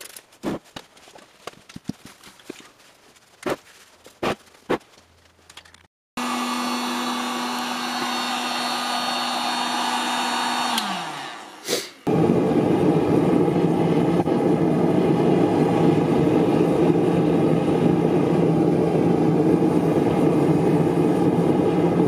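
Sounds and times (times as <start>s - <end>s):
heat gun blowing air: 6.2s - 12.2s.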